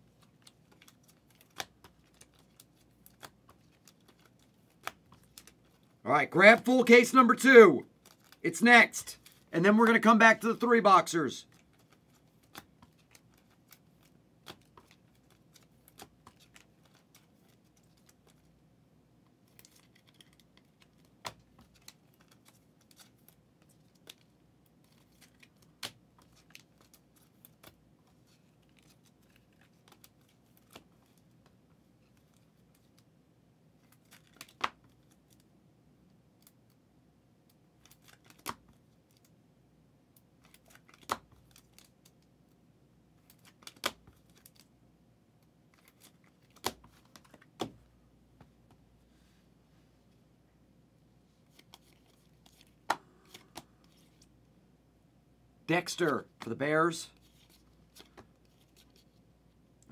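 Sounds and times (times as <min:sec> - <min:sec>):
cards clicking and snapping: 0:00.1 - 0:05.9, 0:11.5 - 0:18.5, 0:19.4 - 0:33.1, 0:33.8 - 0:35.4, 0:37.8 - 0:39.3, 0:40.4 - 0:42.3, 0:43.2 - 0:44.7, 0:45.7 - 0:47.8, 0:51.5 - 0:54.3, 0:57.3 - 0:59.0.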